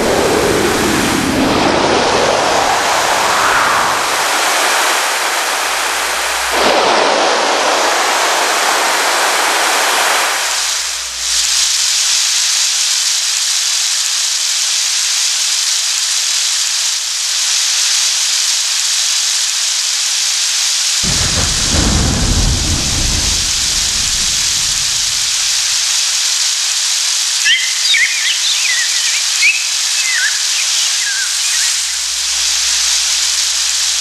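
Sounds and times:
deep thunder rumble: 0.0s - 9.3s, 21.0s - 26.2s
hiss of rain: 0.0s - 34.0s
short bird chirps: 27.4s - 32.0s.

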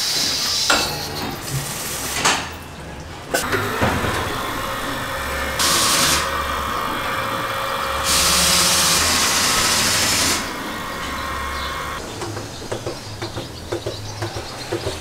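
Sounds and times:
machine hum: 0.5s - 13.7s
loud hissing bursts: 3.3s - 12.0s.

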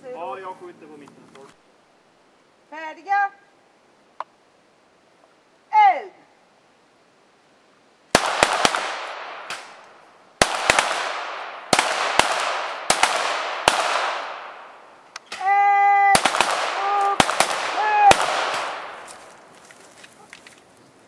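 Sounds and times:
pistol shots with echo: 8.2s - 9.8s, 10.4s - 14.7s, 16.2s - 19.0s.

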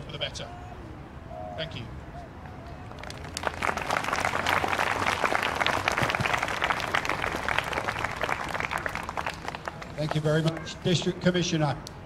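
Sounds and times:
crowd applauding: 2.9s - 11.1s.

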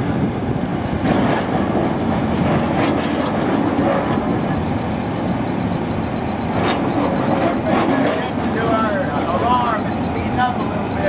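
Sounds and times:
loud mechanical noise: 0.0s - 11.0s
rapid high-pitched beeping: 0.8s - 1.2s, 2.9s - 11.0s.

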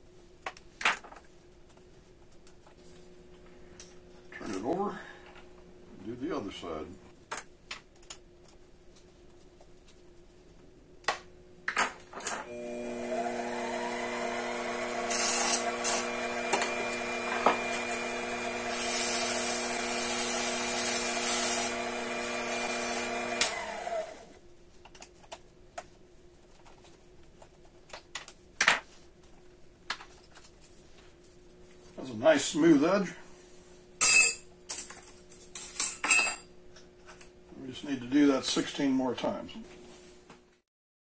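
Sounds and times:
lathe motor running: 12.5s - 24.3s
deburring tool scraping hiss: 14.9s - 23.6s.

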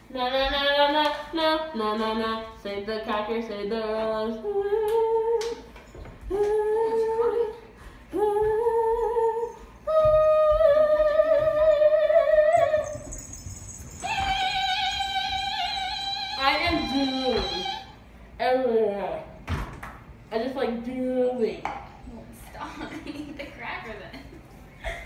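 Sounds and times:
girl singing wordless notes: 0.0s - 13.2s, 14.0s - 18.0s.

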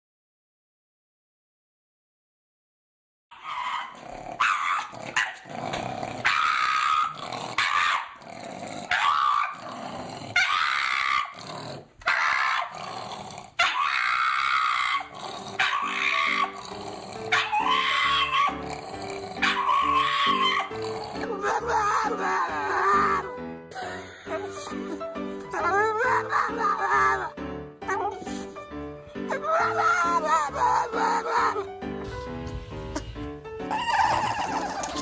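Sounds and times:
dog howling and grumbling: 3.4s - 23.3s, 25.5s - 27.3s, 29.2s - 31.7s, 33.7s - 35.0s
ragtime piano music: 15.8s - 35.0s.

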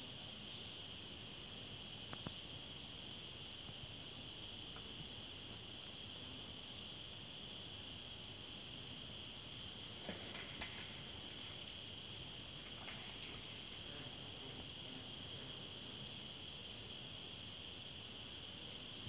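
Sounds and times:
faint sharp clicks: 2.1s - 2.4s.

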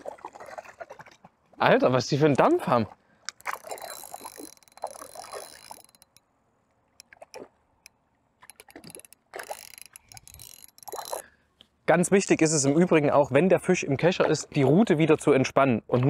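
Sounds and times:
fish splashing: 3.1s - 6.2s, 7.0s - 7.8s, 8.4s - 11.3s
fishing reel gear ticking: 3.3s - 6.2s, 7.0s - 11.3s.

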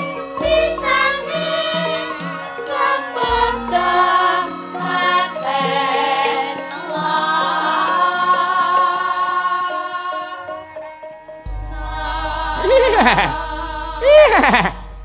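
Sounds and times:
gamelan ensemble playing: 0.0s - 13.4s, 14.0s - 15.0s
woman singing wavering vocal line: 11.7s - 14.7s.

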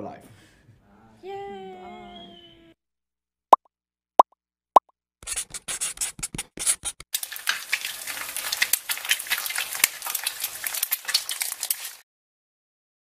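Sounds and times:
dense crackling sizzling noise: 7.2s - 12.0s.

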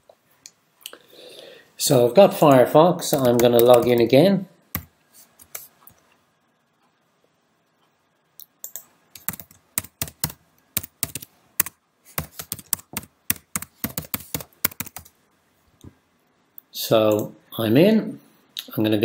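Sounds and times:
computer keyboard typing: 3.0s - 4.1s, 4.7s - 5.7s, 8.6s - 15.1s.

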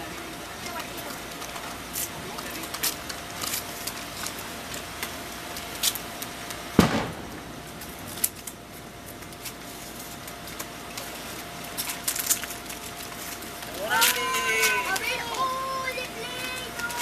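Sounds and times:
faint steady hum: 0.0s - 17.0s
wrapping paper crinkling: 8.0s - 17.0s.

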